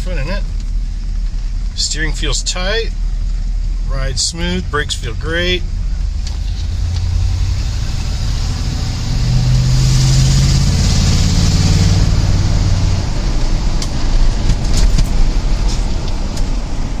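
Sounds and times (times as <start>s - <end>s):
pickup engine and exhaust drone: 0.0s - 17.0s
road noise: 0.0s - 17.0s
sharp clicks or rattles: 13.8s - 16.5s.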